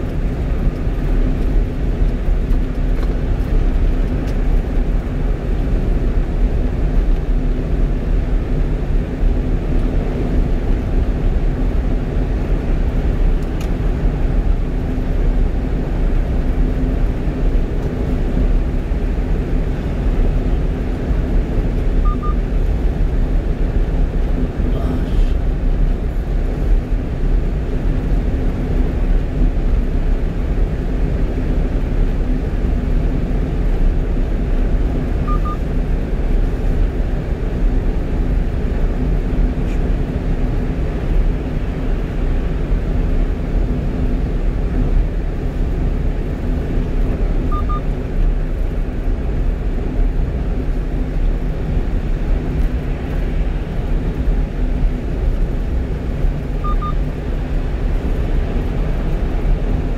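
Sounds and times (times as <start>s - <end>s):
truck engine drone: 0.0s - 59.9s
faint short double beeps: 22.0s - 22.4s, 35.2s - 35.6s, 47.5s - 47.9s, 56.6s - 57.0s.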